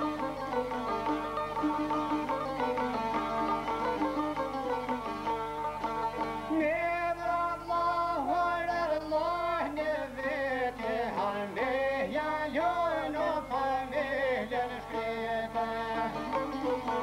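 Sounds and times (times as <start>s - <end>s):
plucked lutes: 0.0s - 6.8s, 14.9s - 17.0s
men singing folk song: 6.5s - 17.0s.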